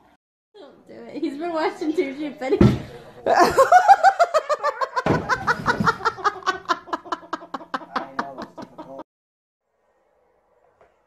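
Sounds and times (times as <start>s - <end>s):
person laughing hard: 3.3s - 9.0s.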